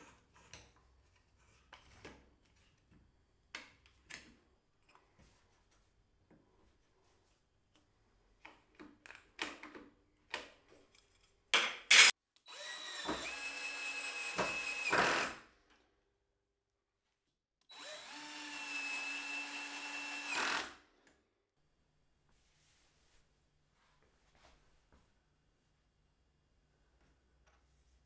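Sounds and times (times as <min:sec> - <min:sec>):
cordless drill boring into wood: 0:12.5 - 0:15.4, 0:17.7 - 0:20.8.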